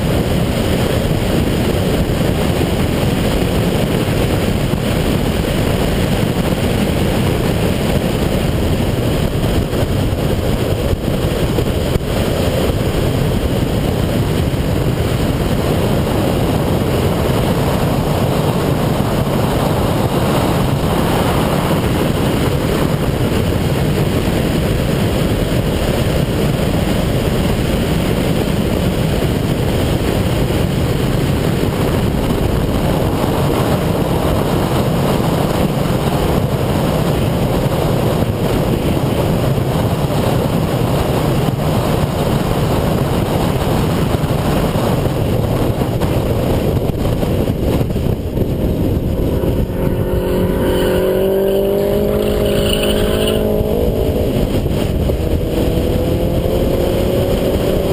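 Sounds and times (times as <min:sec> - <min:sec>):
car engine drone: 0:00.0 - 0:57.9
wind and road noise: 0:00.0 - 0:57.9.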